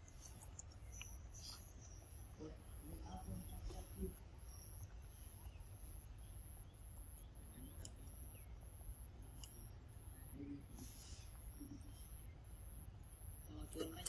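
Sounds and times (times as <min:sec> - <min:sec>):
soft clicks: 0:00.0 - 0:01.2, 0:07.2 - 0:08.2, 0:09.3 - 0:09.7.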